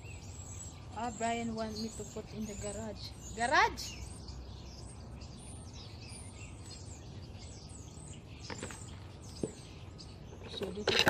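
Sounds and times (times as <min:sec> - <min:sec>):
small birds chirping: 0:00.0 - 0:11.0.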